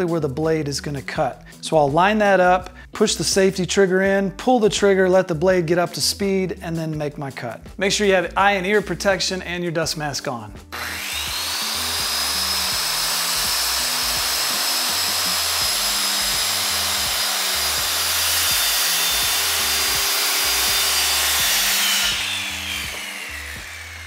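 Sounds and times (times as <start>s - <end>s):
circular saw cutting wood: 10.7s - 24.0s
saw blade winding down: 10.7s - 24.0s.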